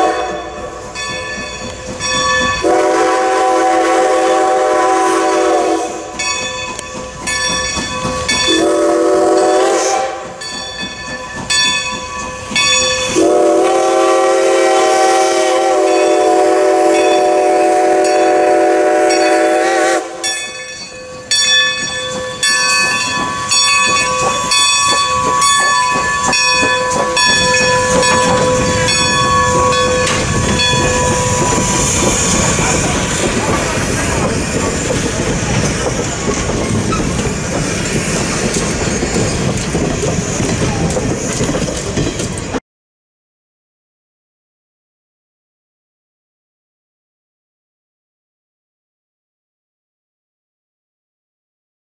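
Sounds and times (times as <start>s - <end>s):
steam locomotive chime whistle: 0.0s - 34.6s
train rail noise: 0.0s - 42.6s.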